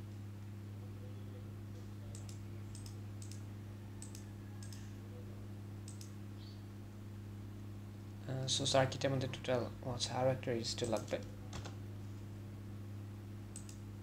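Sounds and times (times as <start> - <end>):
low electrical hum: 0.0 - 14.0
computer mouse clicks: 2.1 - 3.4, 4.0 - 4.8, 5.8 - 6.1, 13.5 - 13.8.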